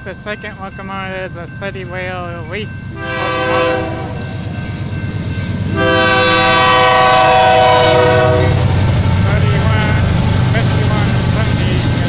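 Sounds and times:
locomotive engine and wheels rumbling: 0.0 - 12.0
locomotive air horn: 2.9 - 4.3, 5.7 - 8.7.

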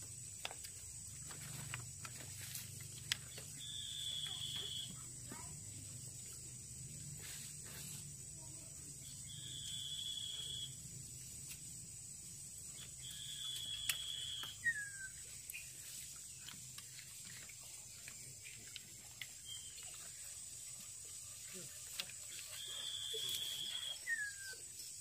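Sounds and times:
high whistles: 9.3 - 10.8, 13.0 - 15.2, 22.6 - 24.6.

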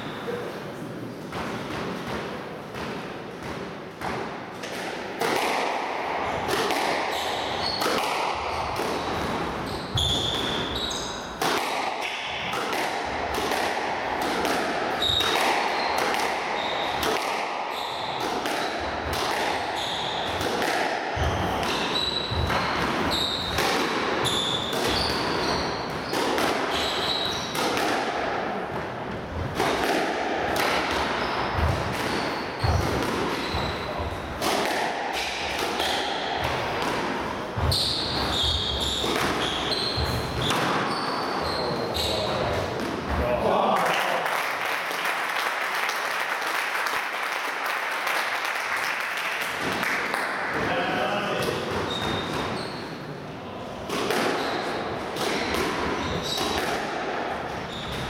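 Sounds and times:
squash ball cracks: 1.3 - 7.2, 7.8 - 9.4, 11.3 - 19.7, 20.3 - 21.9, 29.5 - 33.4, 34.3 - 37.3, 53.8 - 54.4, 55.1 - 57.4
shoes squeaking on wooden floor: 9.6 - 11.3, 19.8 - 20.3, 21.2 - 23.5, 24.2 - 27.5, 31.2 - 32.8, 37.6 - 42.4, 57.6 - 58.0.

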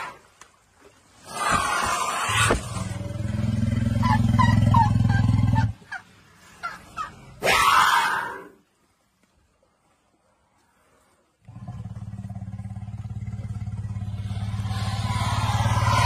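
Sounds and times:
elephant rumbling: 1.2 - 8.5, 10.9 - 16.0.

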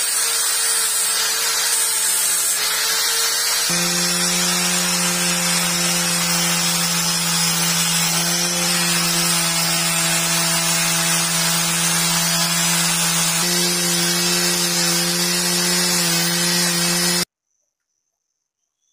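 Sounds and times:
angle grinder buffing: 0.0 - 17.3.

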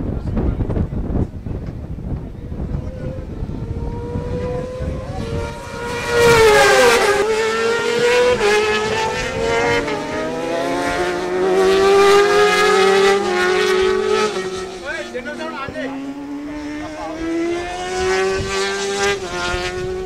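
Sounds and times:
superbike engine at high revs: 2.8 - 20.0.

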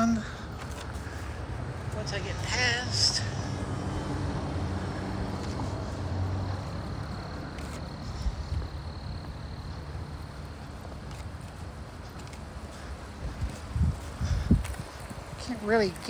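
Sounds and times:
road rumble: 0.0 - 16.0
wind rushing over microphone: 13.0 - 15.7.

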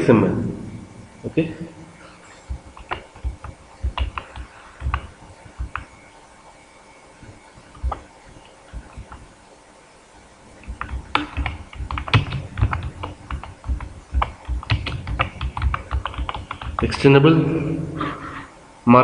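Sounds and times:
typing on a keyboard: 2.5 - 5.9, 10.7 - 16.8.

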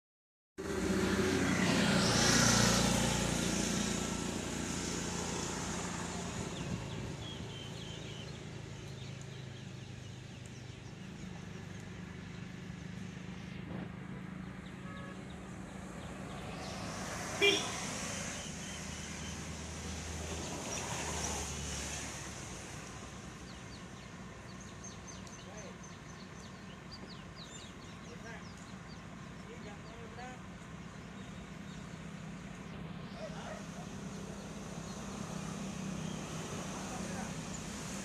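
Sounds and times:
motor vehicle engine running: 22.8 - 38.0.

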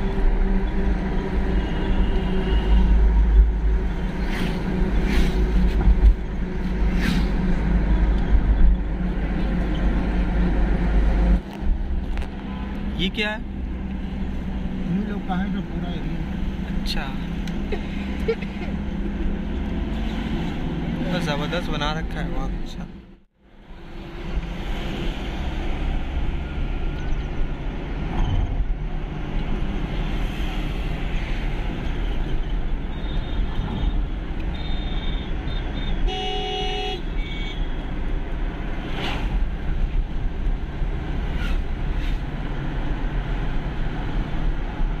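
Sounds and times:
car engine and tyre noise: 0.0 - 45.0
vehicle horn: 1.4 - 3.1, 33.0 - 37.8.

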